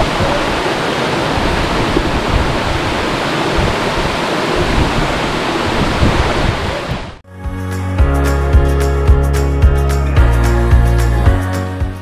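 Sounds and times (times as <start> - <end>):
waterfall rushing: 0.0 - 7.2.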